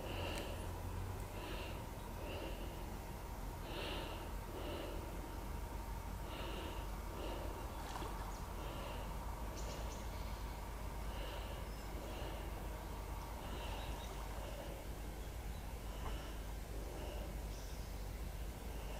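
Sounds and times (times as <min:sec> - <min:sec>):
person breathing through nose: 0:00.0 - 0:03.0, 0:03.6 - 0:05.3, 0:06.2 - 0:07.8, 0:11.0 - 0:15.0, 0:15.8 - 0:17.5
steady low rumble: 0:00.0 - 0:18.9.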